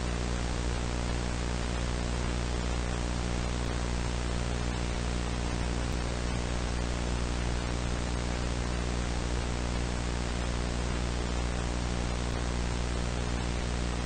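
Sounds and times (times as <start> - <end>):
low electrical hum: 0.0 - 14.0
static hiss: 0.0 - 14.0.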